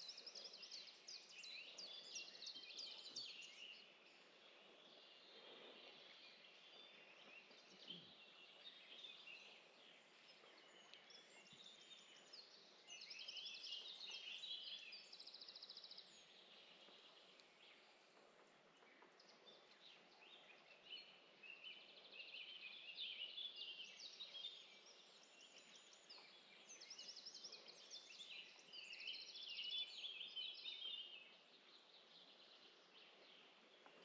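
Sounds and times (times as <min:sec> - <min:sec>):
songbirds chirping and trilling: 0:00.0 - 0:34.0.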